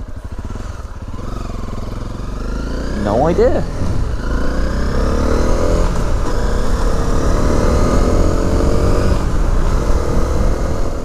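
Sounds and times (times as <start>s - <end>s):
motorcycle engine revving through gears: 0.0s - 11.0s
wind rush: 3.6s - 4.3s.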